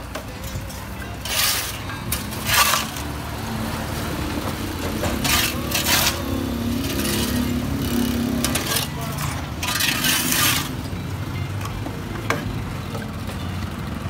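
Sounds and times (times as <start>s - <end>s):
low street rumble: 0.0s - 14.0s
shovels scraping on concrete: 0.4s - 4.1s, 4.8s - 10.9s.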